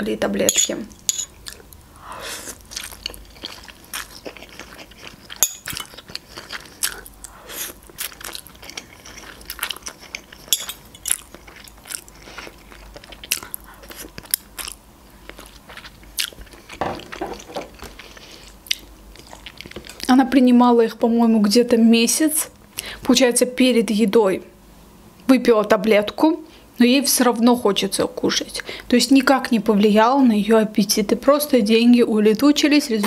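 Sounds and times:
chewing and slurping noodles: 2.4s - 20.1s.

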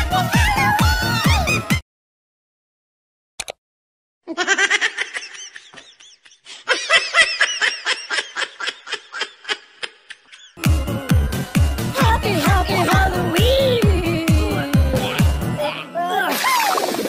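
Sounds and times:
high-pitched cackling laughter: 4.3s - 10.6s.

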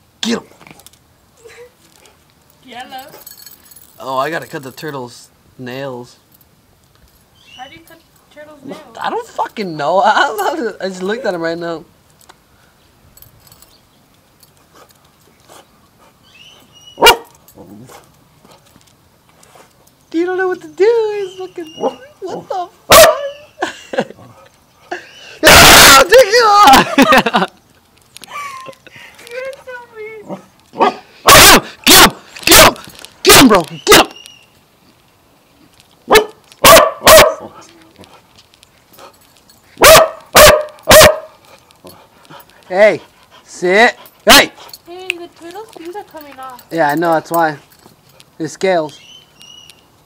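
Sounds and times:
dog barking: 17.0s - 18.0s, 21.8s - 22.1s, 22.9s - 23.5s, 30.3s - 32.8s, 36.1s - 37.6s, 39.8s - 41.4s.

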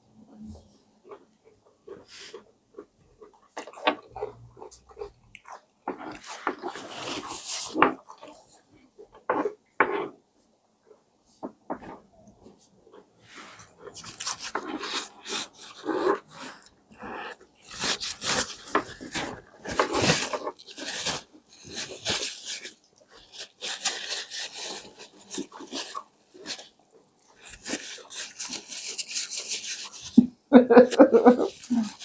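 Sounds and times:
wet chewing and lip-smacking: 1.9s - 7.4s.

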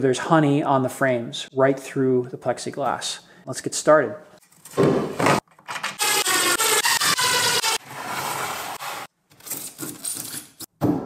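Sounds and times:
wood and plastic scraping: 4.7s - 6.0s.

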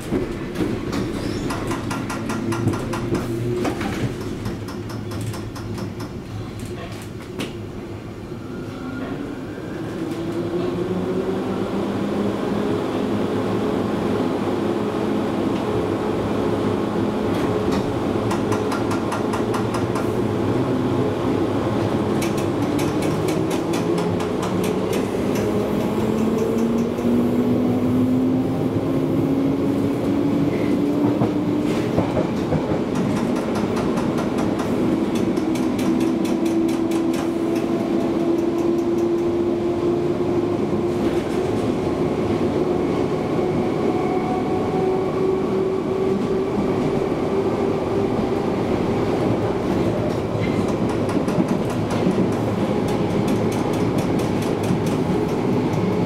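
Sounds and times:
train rumble: 0.0s - 56.0s
wheels clicking over rail joints: 22.1s - 27.2s, 31.9s - 39.4s.

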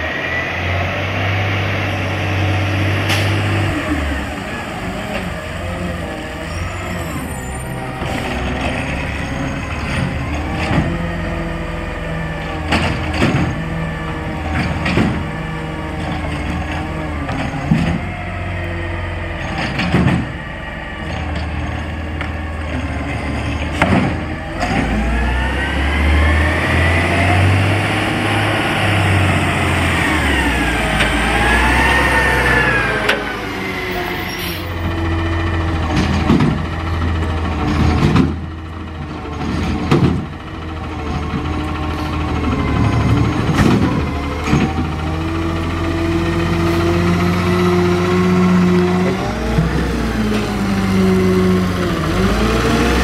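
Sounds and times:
engine revving: 0.0s - 53.0s
refuse truck engine: 0.0s - 53.0s
clunks of cart and arm: 35.9s - 40.4s.

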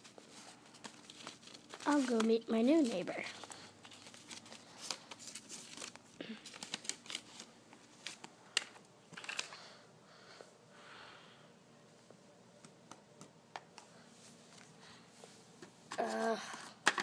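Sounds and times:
soft rustling: 0.0s - 8.4s.

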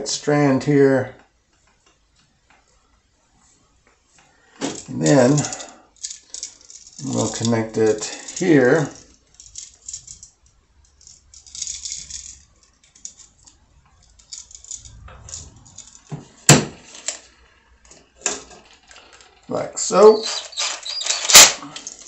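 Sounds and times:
wires clinking and rattling: 4.6s - 22.0s.

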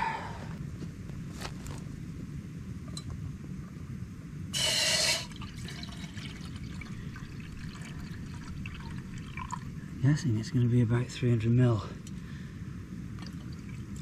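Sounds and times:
water pouring into a pot: 4.7s - 9.7s.

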